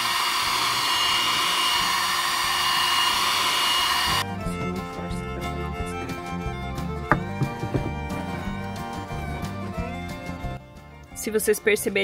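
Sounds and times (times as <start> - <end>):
heat gun fan hiss and whine: 0.0 - 4.2.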